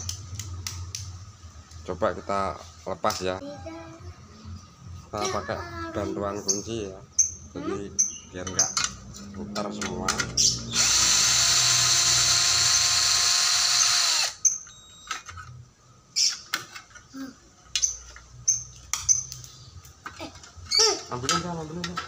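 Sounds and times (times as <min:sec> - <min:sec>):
cordless drill running: 0:10.7 - 0:14.4.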